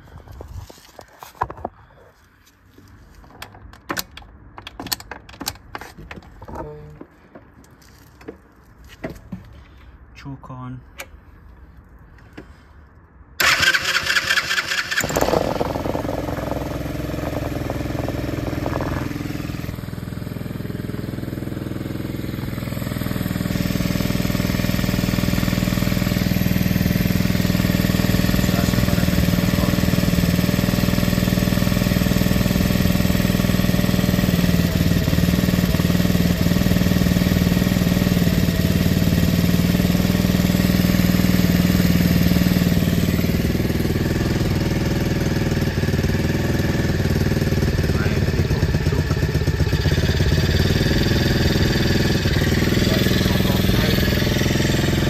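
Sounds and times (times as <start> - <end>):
quad engine idling: 13.4 - 55.0.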